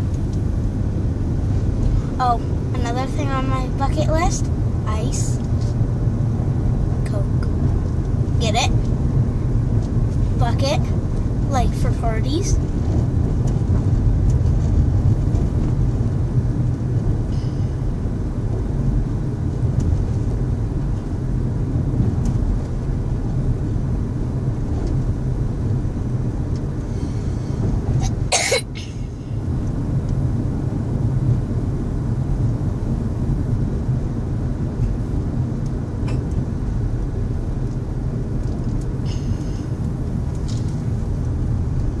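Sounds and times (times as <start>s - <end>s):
car road noise rumble: 0.0s - 42.0s
boy coughing: 28.0s - 29.0s.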